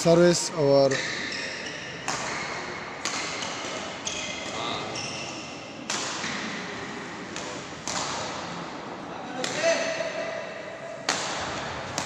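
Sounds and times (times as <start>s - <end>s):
rackets hitting shuttlecock: 0.9s - 8.8s, 11.0s - 12.0s.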